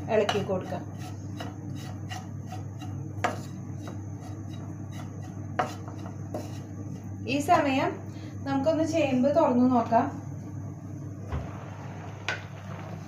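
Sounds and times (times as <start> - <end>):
spatula knocking on pan: 0.1 - 6.6
spatula scraping a pan: 0.1 - 7.1.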